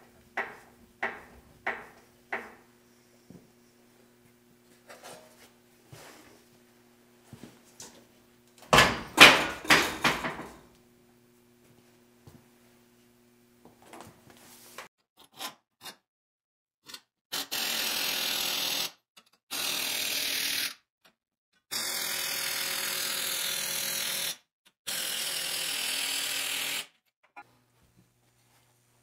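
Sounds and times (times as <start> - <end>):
impact wrench hammering: 0.0 - 2.7, 8.7 - 10.6.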